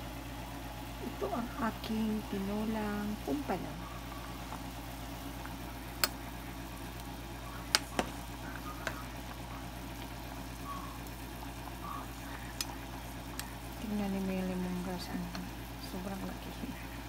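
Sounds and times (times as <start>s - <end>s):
soup bubbling in saucepan: 2.5s - 15.8s.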